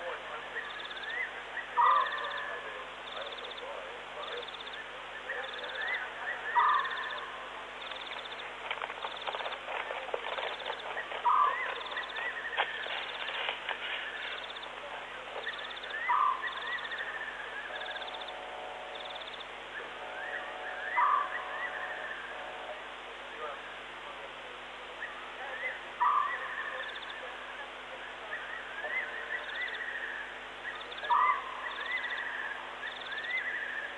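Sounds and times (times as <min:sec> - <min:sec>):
steady hiss: 0:00.0 - 0:33.9
scattered clicks: 0:07.8 - 0:11.8.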